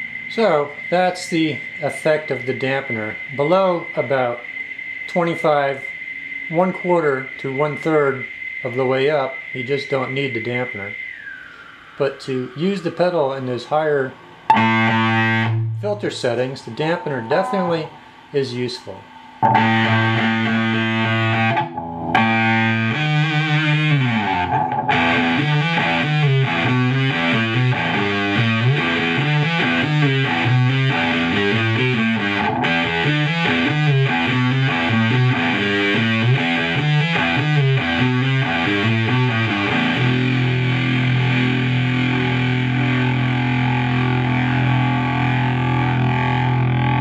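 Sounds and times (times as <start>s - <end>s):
fuzz electric guitar: 0.0s - 10.0s, 14.0s - 47.0s.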